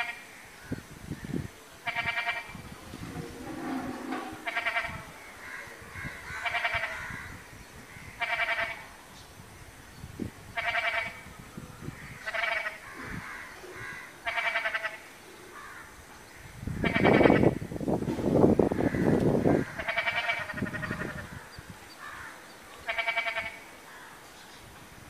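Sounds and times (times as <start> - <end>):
waterhen quavering call: 1.8 - 5.2, 19.8 - 21.3, 22.8 - 23.6.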